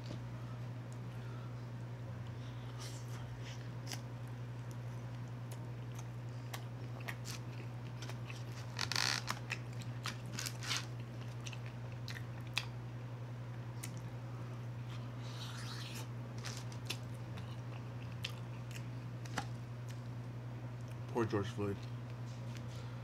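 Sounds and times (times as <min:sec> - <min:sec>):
steady low hum: 0:00.0 - 0:23.0
chewing and biting mouth sounds: 0:02.2 - 0:14.2, 0:14.8 - 0:18.9.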